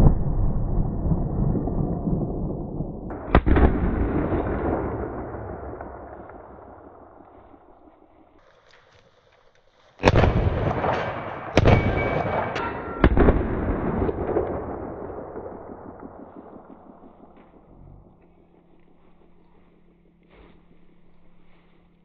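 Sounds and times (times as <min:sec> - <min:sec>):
faint cracks: 0:05.2 - 0:11.4, 0:14.1 - 0:20.4
pistol shots with echo: 0:10.0 - 0:17.3.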